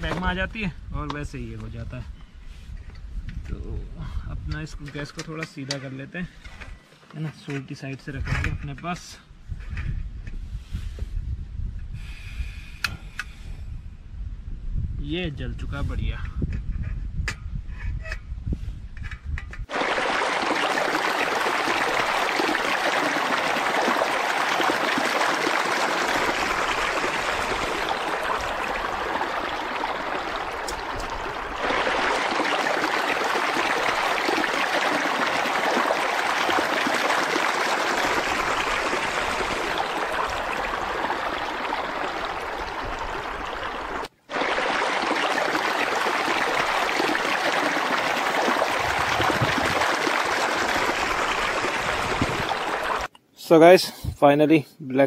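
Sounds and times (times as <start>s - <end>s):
river water rushing: 19.7s - 53.1s.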